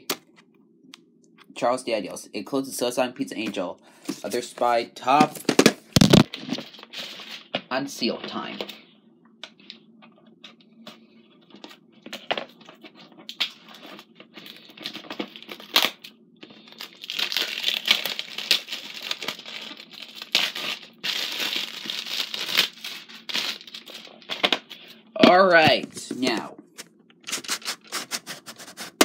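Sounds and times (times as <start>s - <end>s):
plastic wrap crinkling: 5.4s - 7.6s, 11.5s - 25.0s, 25.9s - 29.0s.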